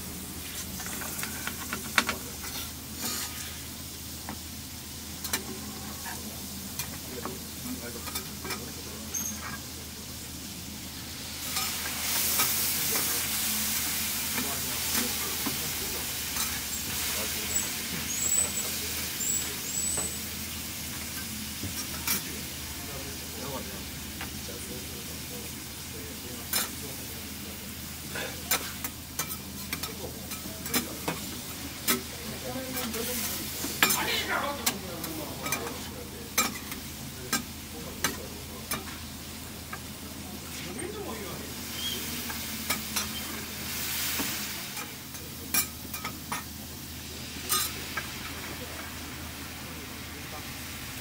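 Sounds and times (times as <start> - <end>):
food sizzling in frying: 0.0 - 51.0.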